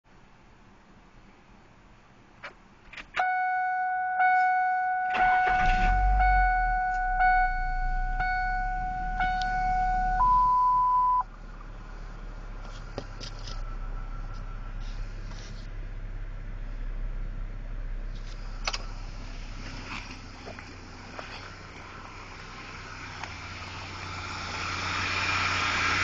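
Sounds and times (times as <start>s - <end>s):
dash warning chime: 3.2s - 11.2s
high beep: 3.2s - 11.3s
engine idling: 5.1s - 26.0s.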